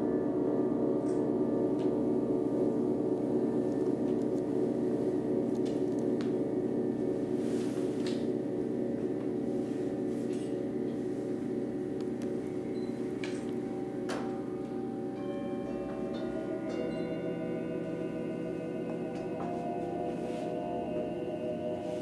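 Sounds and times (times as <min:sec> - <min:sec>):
bronze singing bowls ringing: 0:12.3 - 0:22.0.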